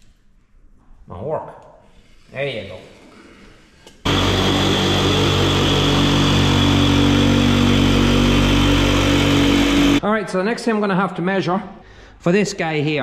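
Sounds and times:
jigsaw cutting rubber: 4.1 - 10.0.

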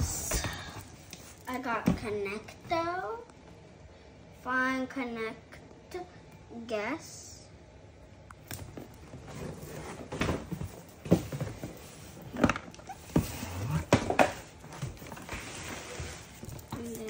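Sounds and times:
cardboard boxes knocking and thumping: 9.8 - 11.9
cardboard scraping and rustling: 13.0 - 16.9.

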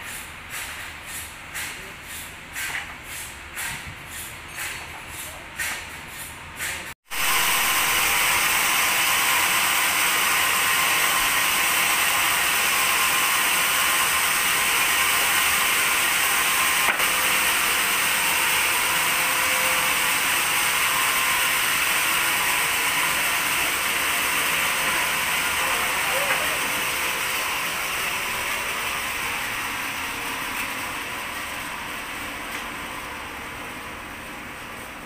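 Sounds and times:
band sawmill whirring: 7.1 - 35.0.

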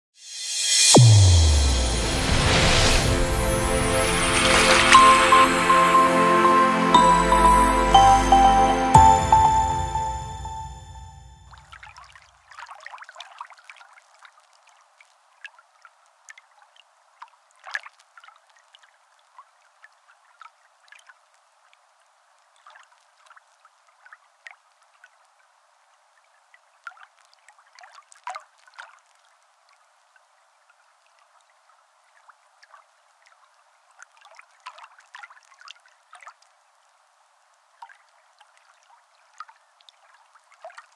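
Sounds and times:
music note: 0.2 - 11.6.

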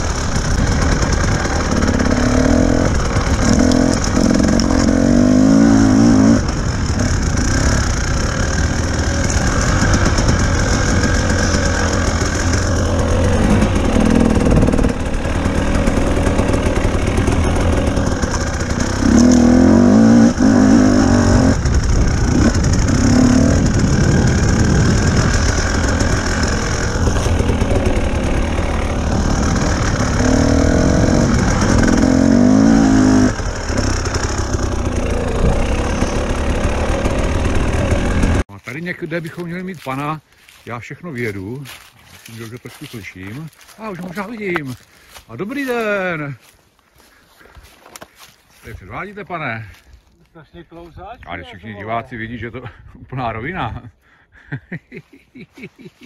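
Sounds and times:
motorcycle engine revving: 0.0 - 38.5.

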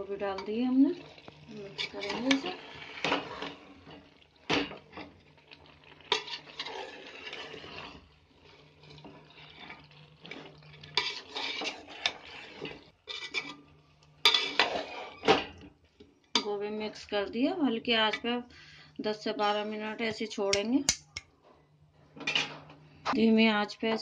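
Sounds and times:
steel spoon scraping metal pot: 0.3 - 5.2, 6.1 - 8.1, 8.9 - 15.3.

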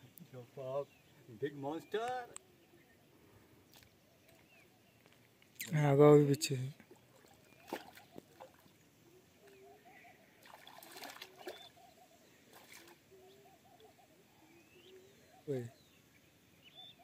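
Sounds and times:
fish splashing in shallow water: 6.8 - 8.8, 10.3 - 13.2.

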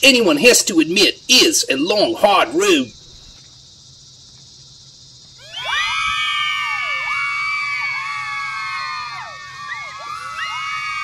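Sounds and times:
low steady hiss: 0.0 - 11.0
crowd cheering and screaming: 5.4 - 11.0.

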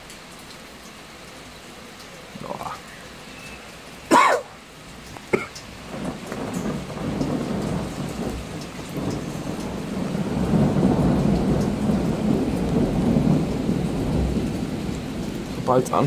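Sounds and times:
steady rain: 0.0 - 16.0
rolling thunder: 5.7 - 16.0.

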